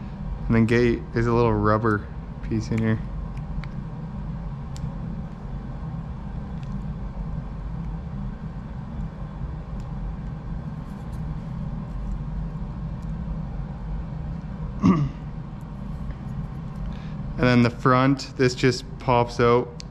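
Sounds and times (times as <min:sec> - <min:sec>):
low background rumble: 0:00.0 - 0:19.9.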